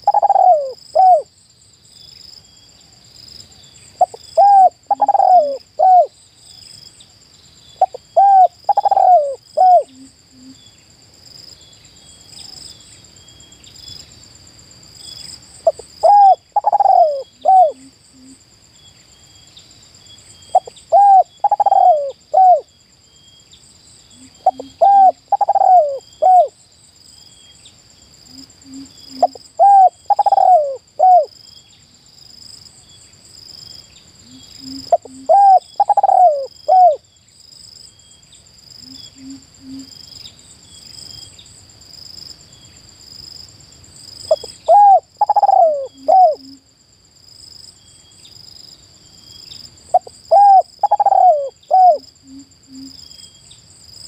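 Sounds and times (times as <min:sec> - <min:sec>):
dove cooing: 0:00.0 - 0:01.3, 0:04.0 - 0:06.1, 0:07.8 - 0:10.6, 0:15.6 - 0:17.9, 0:20.5 - 0:22.7, 0:24.2 - 0:26.6, 0:28.4 - 0:31.3, 0:34.3 - 0:37.0, 0:44.3 - 0:46.6, 0:49.9 - 0:53.0
insects trilling: 0:00.0 - 0:54.0.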